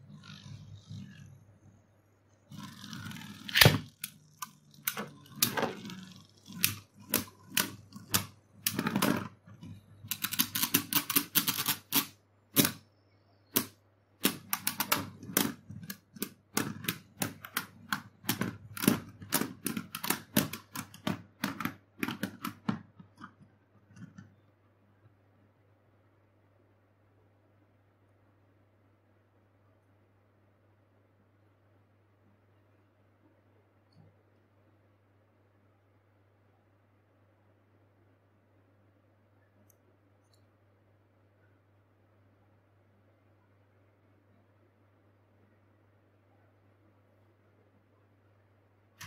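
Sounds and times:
ripcord launcher ripping: 2.5 - 9.2.

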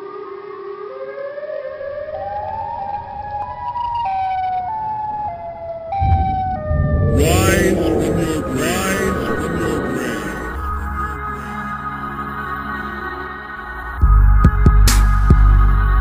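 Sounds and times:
siren-like wail: 3.9 - 12.3
heavy low hit: 6.0 - 11.8
loud burst of music: 6.0 - 12.2
deep rumble: 6.0 - 12.4.

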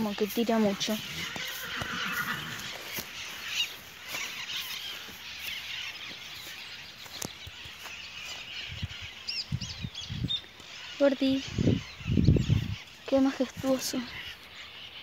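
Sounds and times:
birds calling: 0.0 - 15.0
wind hiss on microphone: 8.6 - 10.5, 11.2 - 14.3.

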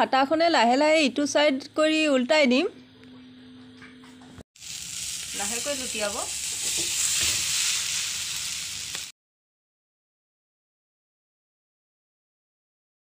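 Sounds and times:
omelette sizzling in a pan: 4.6 - 9.1.

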